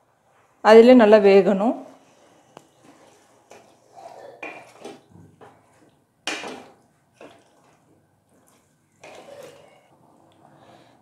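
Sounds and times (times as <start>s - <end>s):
wooden spatula scraping a metal pot: 1.9s - 9.8s.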